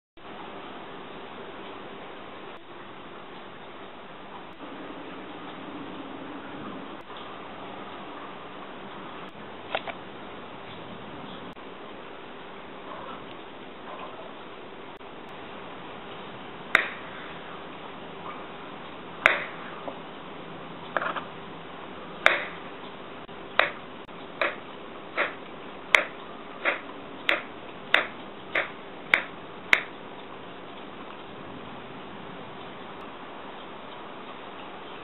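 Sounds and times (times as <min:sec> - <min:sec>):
knife tapping on cutting board: 0:23.6 - 0:23.8.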